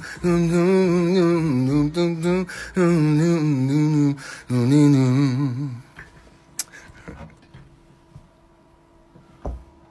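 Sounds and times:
faint steady hum: 0:00.0 - 0:09.9.

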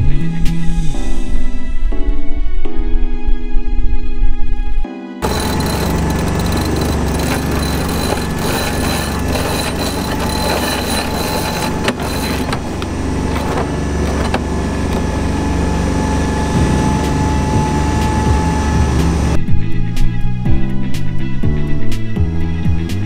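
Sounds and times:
winch clicking: 0:05.2 - 0:15.5.

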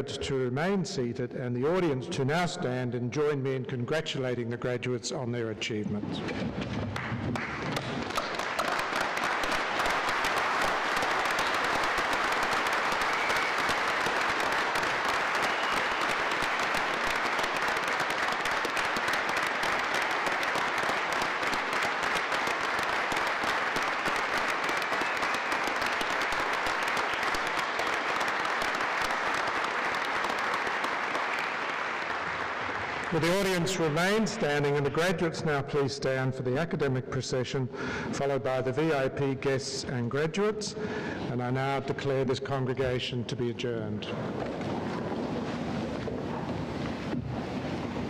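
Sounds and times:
large audience applauding: 0:06.9 - 0:35.2.

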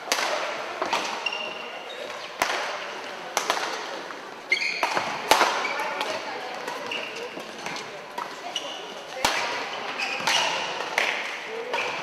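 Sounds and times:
sharp knocks echoing in hall: 0:00.0 - 0:01.2, 0:02.0 - 0:08.5
shoes squeaking on court floor: 0:00.8 - 0:02.4, 0:04.5 - 0:10.8.

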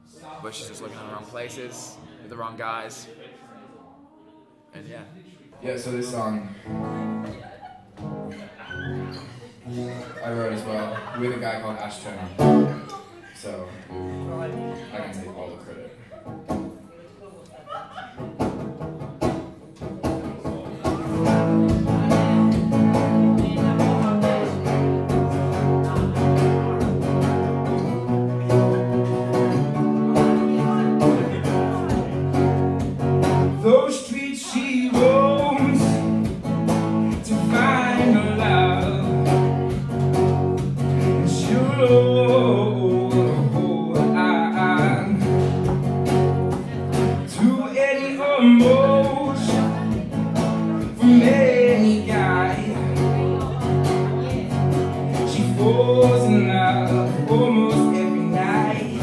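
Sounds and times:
acoustic guitar playing: 0:06.6 - 0:12.9, 0:13.8 - 0:15.4, 0:16.2 - 0:16.8, 0:18.1 - 0:59.0
man singing: 0:33.4 - 0:39.8, 0:40.8 - 0:45.7, 0:47.2 - 0:54.3, 0:55.1 - 0:59.0.

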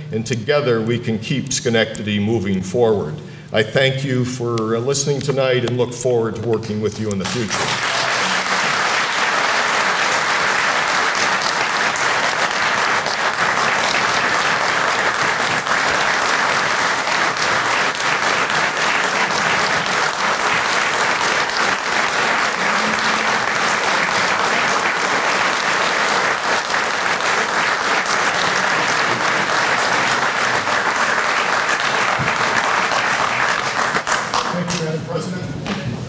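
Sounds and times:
audience applauding: 0:07.1 - 0:34.9.

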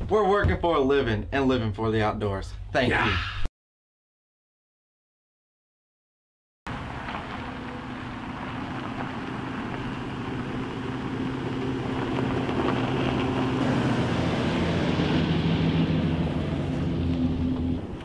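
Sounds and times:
pickup truck engine passing: 0:06.7 - 0:18.0.

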